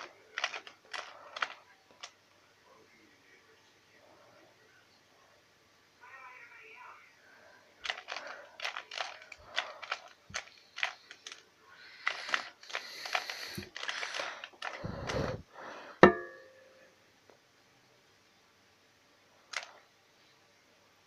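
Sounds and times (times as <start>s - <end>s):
plastic puzzle cube clicking: 0.0s - 2.1s, 7.8s - 14.8s, 19.5s - 19.7s.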